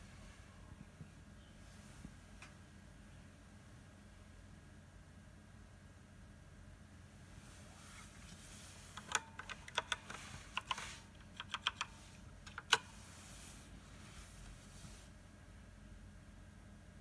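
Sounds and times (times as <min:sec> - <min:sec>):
typing on computer keyboard: 0:09.0 - 0:12.9.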